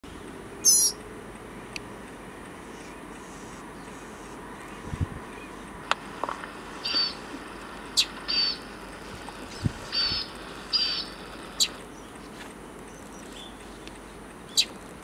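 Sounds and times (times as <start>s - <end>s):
bird raspy calls: 0.6s - 1.0s, 6.8s - 7.3s, 7.9s - 12.1s, 14.5s - 14.8s
bird sharp chips: 0.6s - 1.0s, 6.8s - 7.2s, 7.9s - 8.7s, 9.9s - 11.8s.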